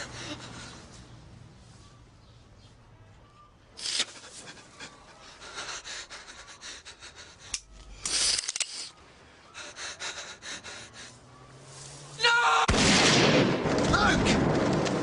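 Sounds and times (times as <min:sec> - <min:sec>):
person breathing heavily: 0:00.0 - 0:01.1, 0:04.2 - 0:08.1, 0:09.2 - 0:11.3.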